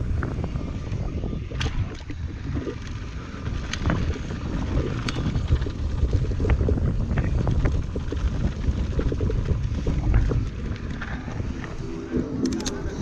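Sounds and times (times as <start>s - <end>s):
bike clicks and rattles: 0.0s - 13.0s
bike tyre noise: 0.0s - 13.0s
wind rumbling on microphone: 0.0s - 13.0s.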